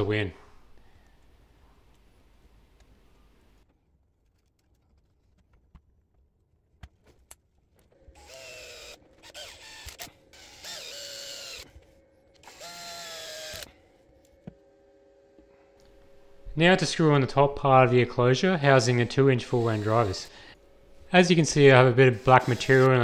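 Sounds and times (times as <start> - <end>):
electric screwdriver motor whine: 8.2 - 11.7, 12.4 - 13.7, 22.2 - 23.0.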